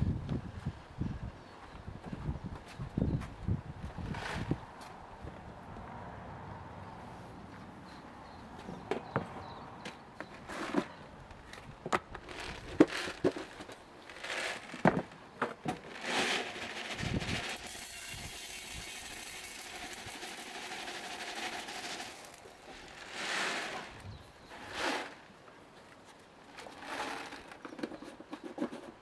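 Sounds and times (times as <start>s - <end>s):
granules pouring onto metal shovel: 16.1s - 24.0s.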